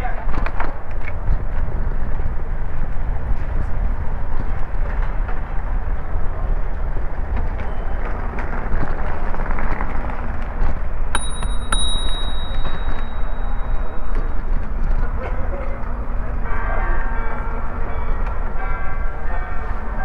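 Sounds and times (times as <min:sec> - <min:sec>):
bicycle riding on brick pavement: 0:00.0 - 0:16.9
bicycle bell dings: 0:11.1 - 0:14.6.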